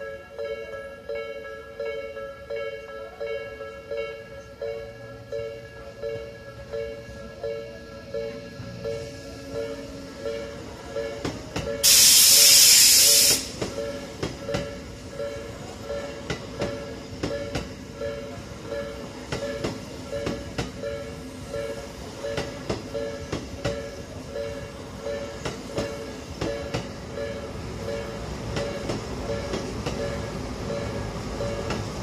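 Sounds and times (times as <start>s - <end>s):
railway crossing bell ringing: 0.0s - 32.0s
train wheels clacking on rails: 8.4s - 32.0s.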